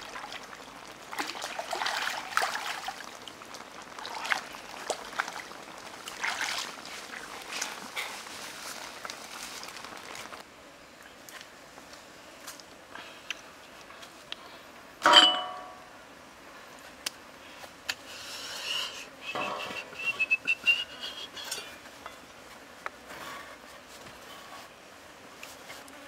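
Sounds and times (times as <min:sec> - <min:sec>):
metal tray clanking and ringing: 0:15.1 - 0:15.8.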